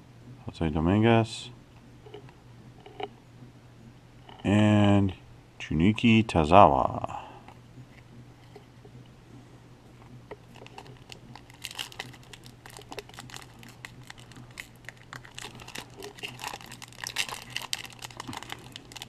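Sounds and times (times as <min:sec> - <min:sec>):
foil wrapper crinkling: 0:10.4 - 0:19.0.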